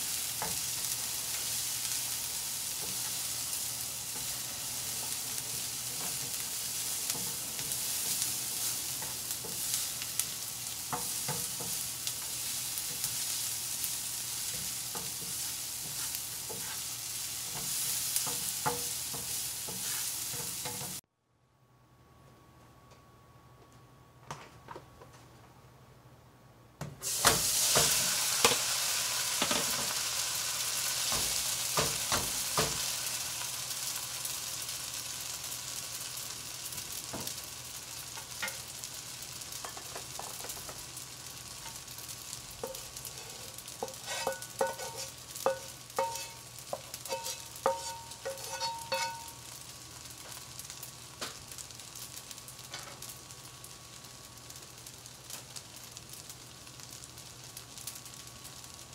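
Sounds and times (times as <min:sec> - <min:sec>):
spaghetti sizzling in hot pot: 0:00.0 - 0:21.0, 0:27.0 - 0:58.9.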